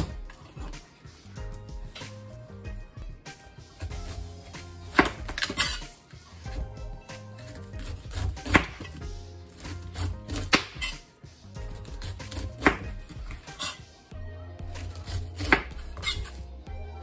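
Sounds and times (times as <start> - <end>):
knife slicing pineapple rind: 3.7 - 11.0, 11.6 - 13.9, 14.7 - 16.4.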